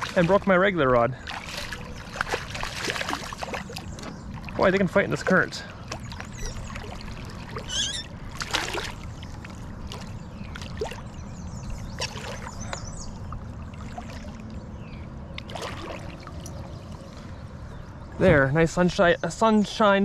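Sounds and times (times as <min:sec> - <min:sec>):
fish splashing at surface: 0:01.3 - 0:04.6, 0:05.8 - 0:11.0, 0:15.4 - 0:16.6.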